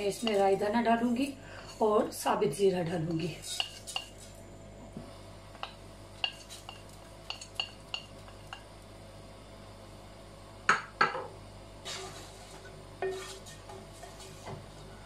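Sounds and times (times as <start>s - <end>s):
spoon and dishes clinking: 5.6s - 8.6s.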